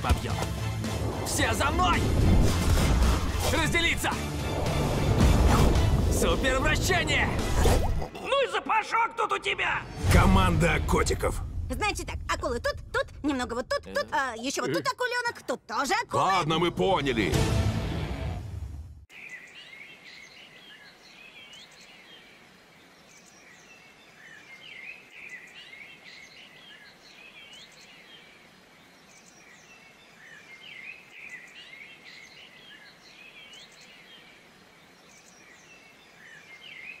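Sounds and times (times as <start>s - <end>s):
faint steady hiss: 19.1s - 37.0s.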